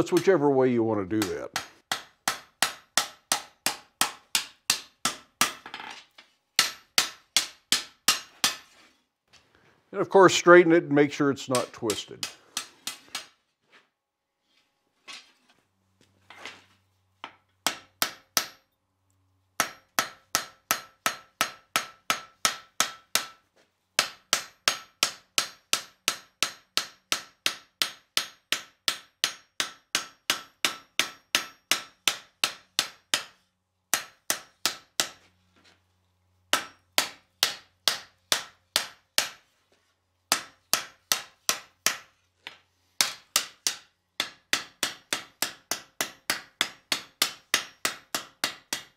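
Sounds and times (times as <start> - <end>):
hammer striking steel on anvil: 1.2 - 5.7, 6.6 - 8.7, 11.5 - 13.4, 17.2 - 18.8, 19.6 - 23.4, 24.0 - 35.3, 36.5 - 39.4, 40.3 - 42.1, 43.0 - 48.9.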